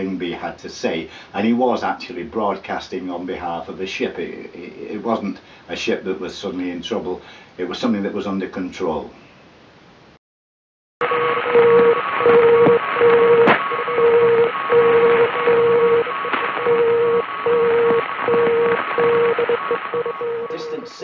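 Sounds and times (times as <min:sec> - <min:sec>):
higher morse tone: 0:11.0 - 0:21.0
morse code tone: 0:11.0 - 0:21.0
radio hiss: 0:11.0 - 0:21.0.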